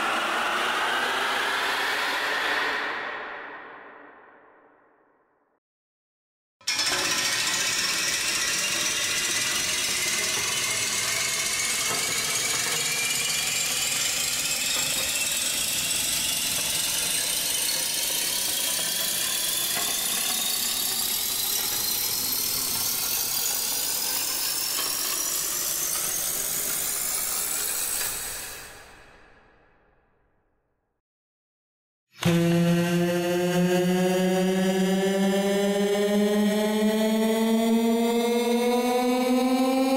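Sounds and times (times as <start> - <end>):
rising tones sound effect: 32.2 - 39.9.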